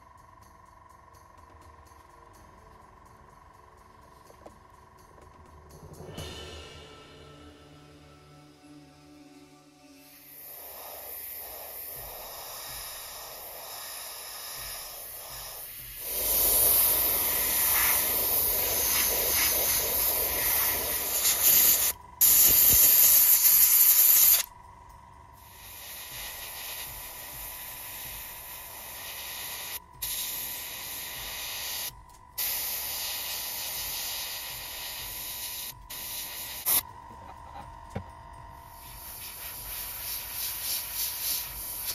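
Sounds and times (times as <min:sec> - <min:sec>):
airbrush hissing: 0:09.8 - 0:24.5, 0:25.4 - 0:38.0, 0:38.6 - 0:41.9.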